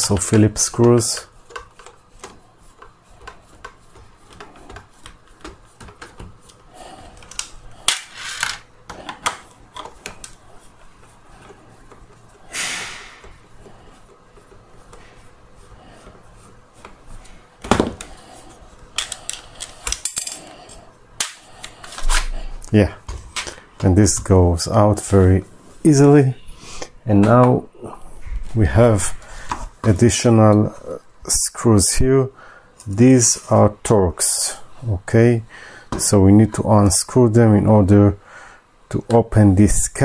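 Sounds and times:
sharp knock: 12.5s - 13.2s.

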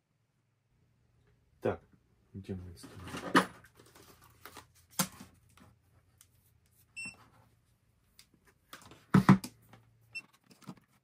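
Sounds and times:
multimeter beep: 7.0s - 7.2s.

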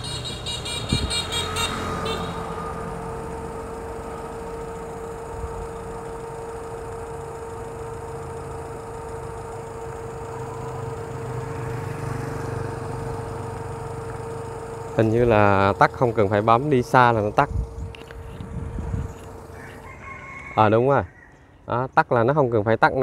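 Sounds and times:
car engine idling: 0.0s - 20.1s.

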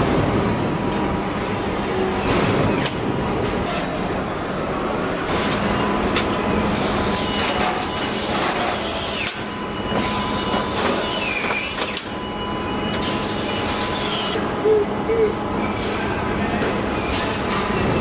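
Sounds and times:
machinery hum: 0.0s - 18.0s
tools and parts clattering: 7.3s - 9.4s.

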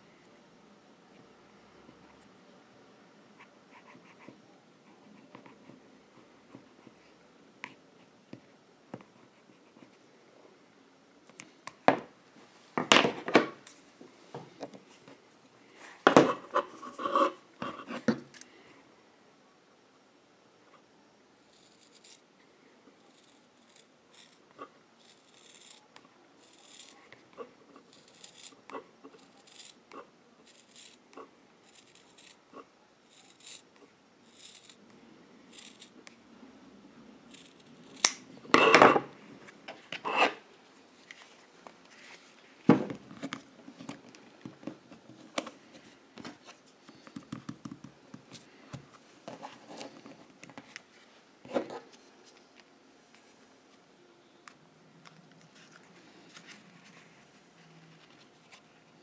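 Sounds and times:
soft handling noises: 38.5s - 53.9s, 54.5s - 59.0s.

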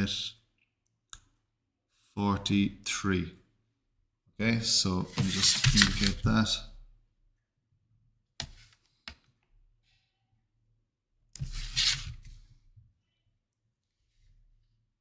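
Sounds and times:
set square scraping across paper: 5.1s - 6.2s, 11.4s - 12.3s.

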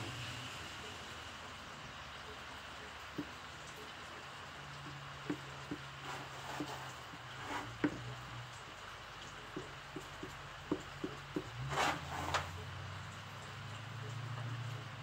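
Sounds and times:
light ticks and taps: 3.0s - 11.6s
short scraping rasps: 11.6s - 12.6s.

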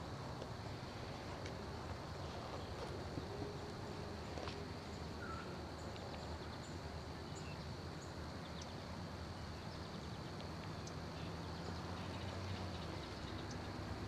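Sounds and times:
high insect drone: 0.0s - 14.0s
low steady hum: 0.0s - 14.0s
faint bird chirps: 4.9s - 13.8s.

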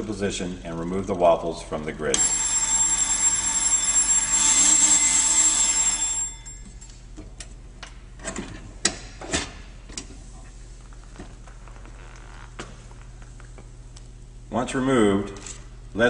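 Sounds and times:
electric timer bell ringing: 2.1s - 7.0s.

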